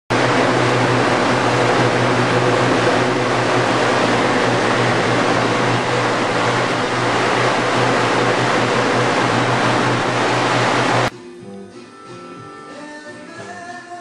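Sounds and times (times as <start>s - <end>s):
electric blower running: 0.1s - 11.1s.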